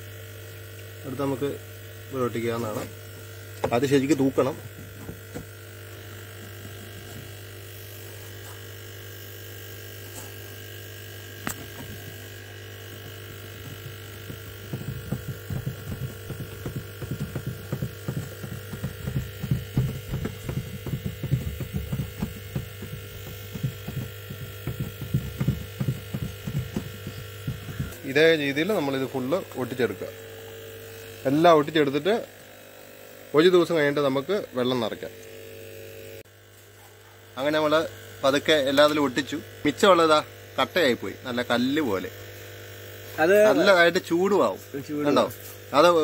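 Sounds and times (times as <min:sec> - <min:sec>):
electrical hum: 0:00.0 - 0:46.0
hand rubbing on plastic: 0:11.7 - 0:30.0.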